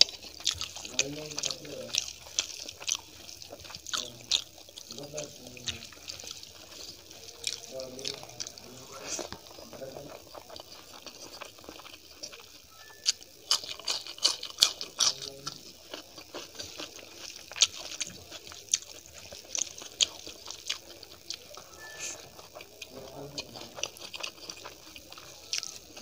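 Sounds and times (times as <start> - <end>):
mouth clicks and crackles: 0.0 - 26.0
person chewing food: 0.0 - 26.0.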